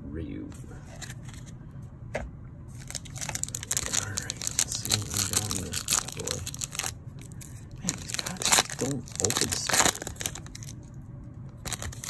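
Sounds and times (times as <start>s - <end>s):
foil wrapper crinkling and tearing: 2.8s - 10.8s, 11.6s - 12.0s.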